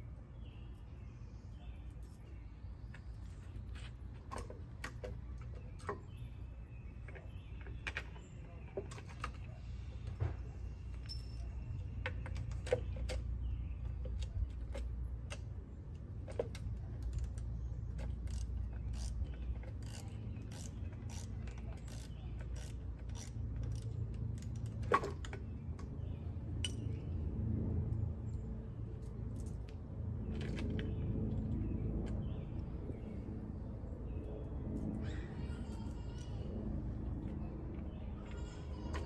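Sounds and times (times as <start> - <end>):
low background rumble: 0.0 - 39.0
screws clicking and scraping metal: 16.7 - 24.8.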